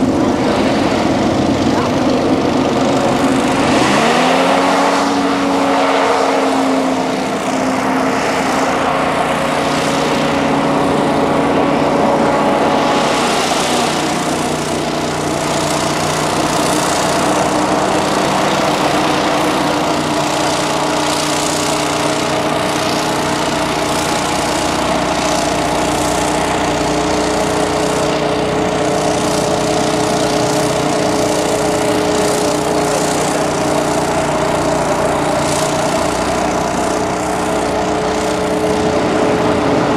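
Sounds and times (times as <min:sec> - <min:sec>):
hovercraft engine drone: 0:00.0 - 0:39.9.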